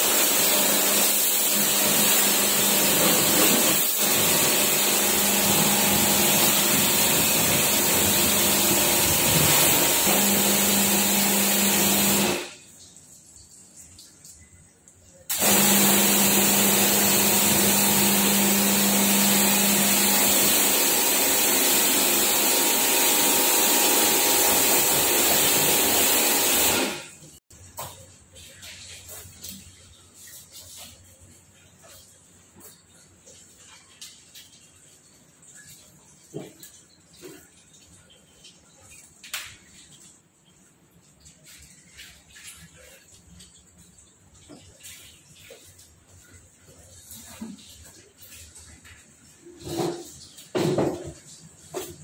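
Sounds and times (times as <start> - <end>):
pressure washer jet hissing: 0.0 - 12.6, 15.3 - 27.2
pump motor hum: 0.0 - 12.6, 15.3 - 27.4.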